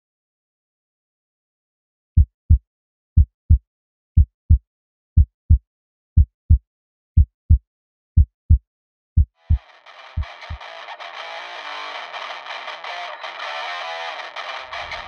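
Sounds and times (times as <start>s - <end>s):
heartbeat double thumps: 2.2s - 2.6s, 3.2s - 3.6s, 4.2s - 4.6s, 7.2s - 7.6s, 8.2s - 8.6s, 9.2s - 9.6s, 10.2s - 10.6s.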